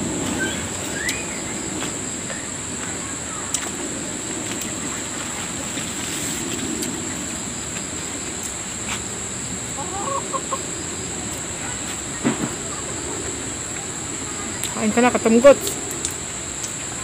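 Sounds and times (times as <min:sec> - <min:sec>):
constant hiss: 0:00.0 - 0:17.0
insects droning: 0:00.0 - 0:17.0.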